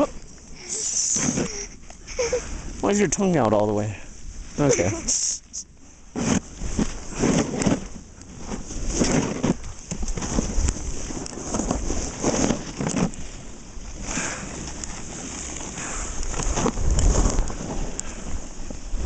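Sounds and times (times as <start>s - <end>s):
skis scraping on snow: 0.6s - 1.6s, 6.1s - 19.0s
wind buffeting microphone: 8.5s - 19.0s.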